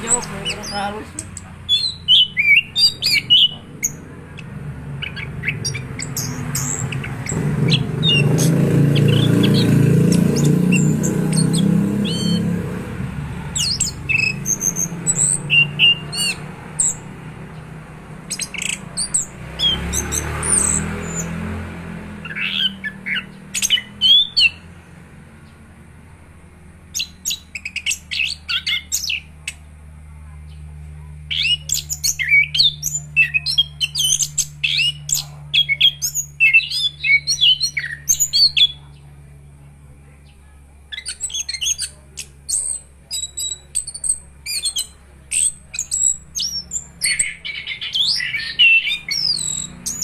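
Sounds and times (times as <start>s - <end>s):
thrush chirping and whistling: 0.0s - 12.6s, 13.5s - 17.1s, 18.3s - 21.6s, 22.2s - 24.7s, 26.9s - 29.3s, 31.3s - 38.8s, 40.9s - 50.0s.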